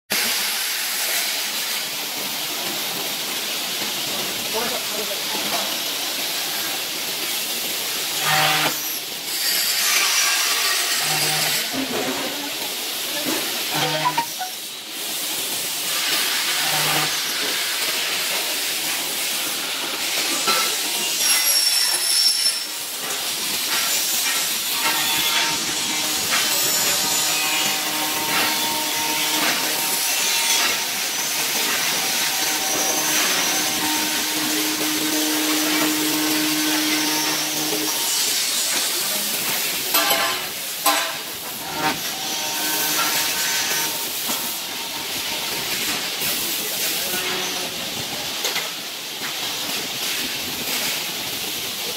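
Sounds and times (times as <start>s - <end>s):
machine spindle hissing rush: 13.6s - 39.9s.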